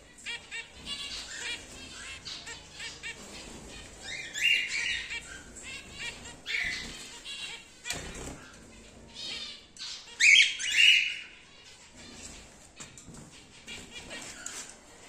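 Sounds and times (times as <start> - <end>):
cockatiels squawking: 0.1 - 12.6, 13.3 - 14.7.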